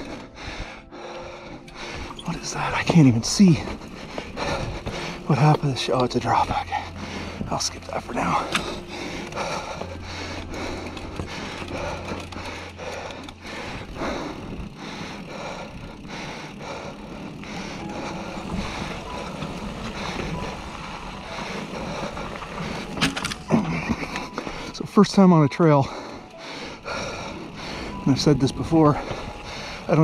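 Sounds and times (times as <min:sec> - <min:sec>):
bike tyres on rocky trail: 0:00.0 - 0:30.0
heavy breathing: 0:00.0 - 0:30.0.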